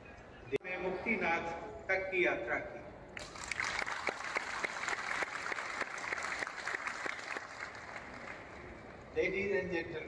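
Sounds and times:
audience applauding: 3.2s - 8.7s.

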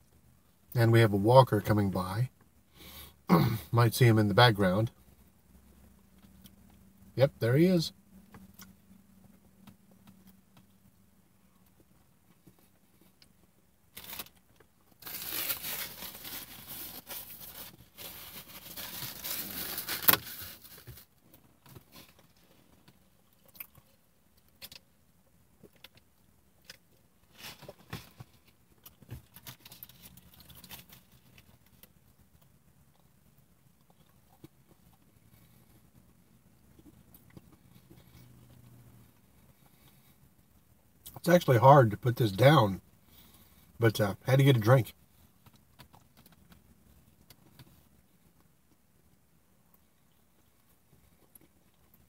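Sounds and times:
paper wrapper rustling: 15.0s - 21.1s.

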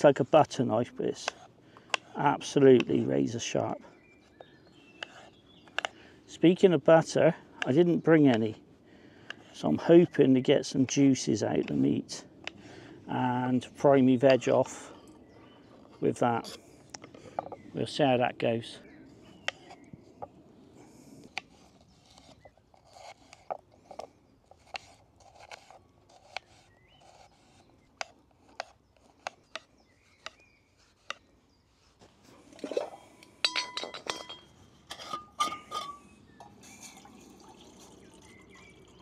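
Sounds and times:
metal cookware clinking: 33.4s - 36.1s.

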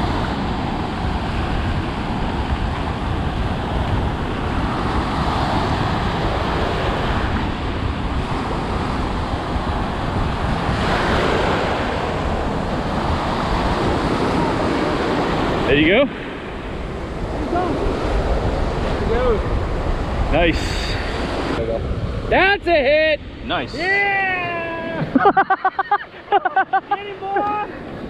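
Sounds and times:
wind rumbling on microphone: 0.0s - 25.6s
surf breaking: 0.0s - 28.0s.

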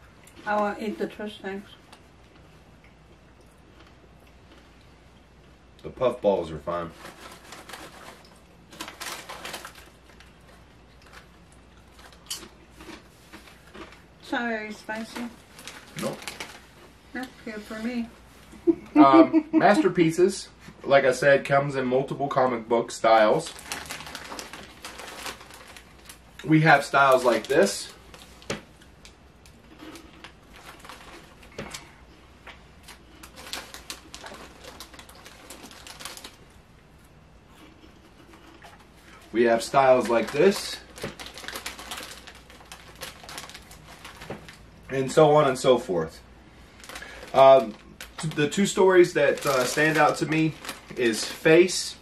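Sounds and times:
plastic snack bag crinkling: 6.4s - 14.4s, 15.0s - 17.9s, 23.0s - 32.0s, 32.8s - 36.6s, 37.7s - 52.0s.

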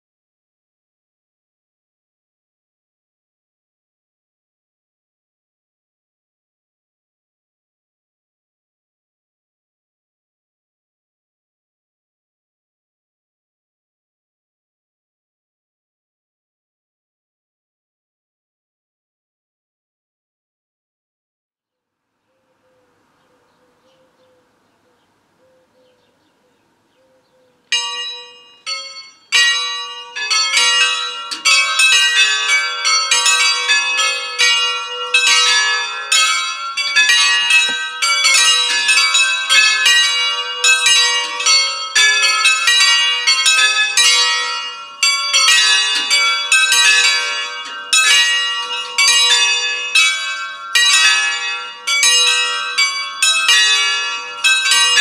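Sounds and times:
church bells ringing: 27.0s - 55.0s.

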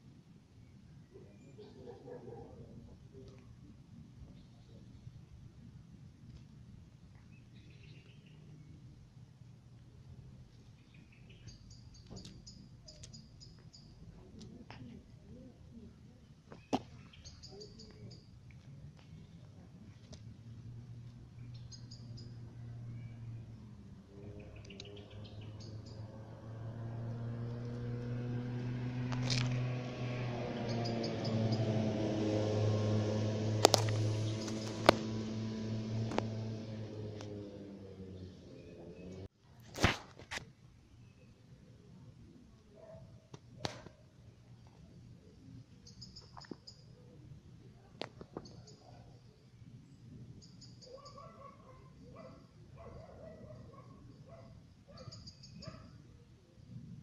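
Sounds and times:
faint high-pitched chirping: 10.6s - 15.5s, 16.5s - 18.4s, 21.4s - 23.7s, 45.5s - 47.2s, 48.3s - 56.0s
faint high chirps: 16.6s - 18.4s.

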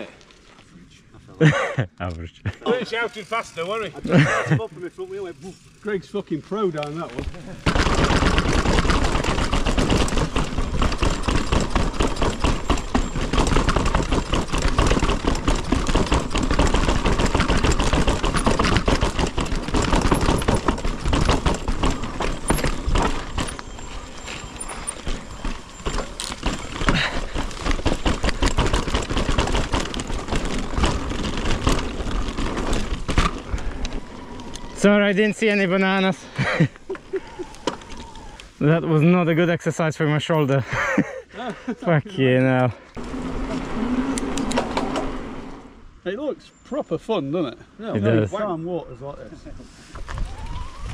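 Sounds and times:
bike tyres rattling over stones: 2.8s - 39.2s.

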